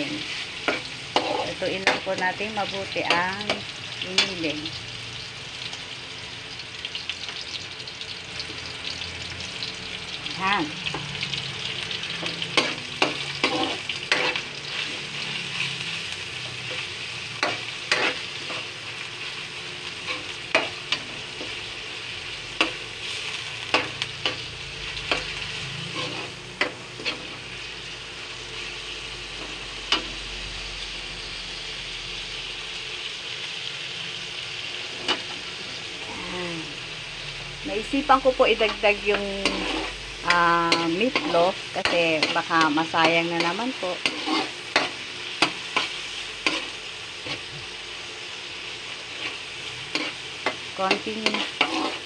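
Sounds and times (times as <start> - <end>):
meat sizzling in a wok: 0.0 - 52.0
metal spoon scraping and clinking: 39.1 - 42.4, 49.9 - 52.0.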